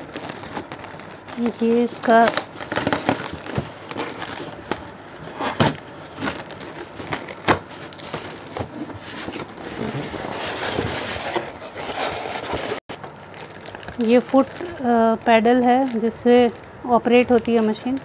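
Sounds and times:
plastic bag crinkling: 0:00.0 - 0:18.0
foam scraping and rubbing: 0:08.7 - 0:12.8.

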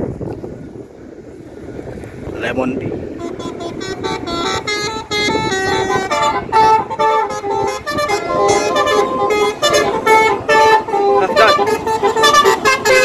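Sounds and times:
bus engine running: 0:03.0 - 0:13.0
multi-tone air horn melody: 0:03.2 - 0:13.0.

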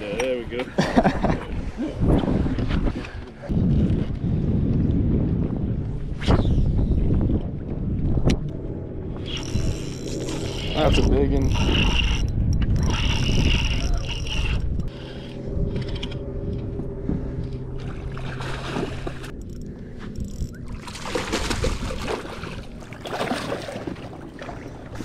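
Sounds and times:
fishing reel gears whining: 0:09.2 - 0:16.2
water splashing: 0:17.8 - 0:19.4, 0:20.6 - 0:25.0.

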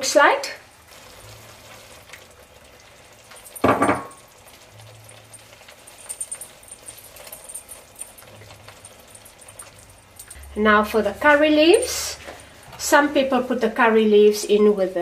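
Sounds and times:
gravy simmering in a pot: 0:00.1 - 0:15.0
faint crackles and pops: 0:00.8 - 0:03.6.

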